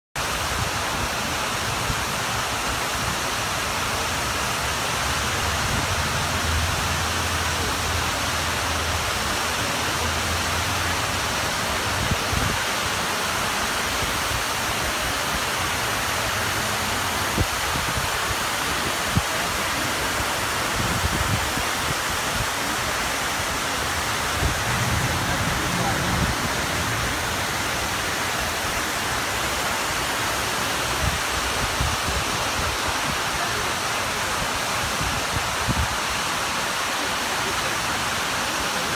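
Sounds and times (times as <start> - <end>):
waterfall rushing down stone walls: 0.2 - 38.9.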